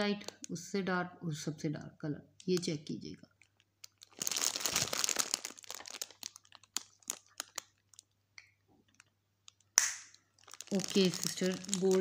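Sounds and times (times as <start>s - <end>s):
cellophane wrapping crinkling: 0.0s - 0.6s, 2.4s - 8.2s, 8.8s - 12.0s.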